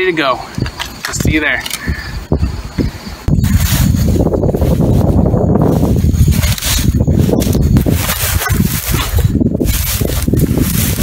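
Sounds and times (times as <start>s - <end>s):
wind rumbling on microphone: 0.0s - 11.0s
rustling through tall grass: 2.2s - 11.0s.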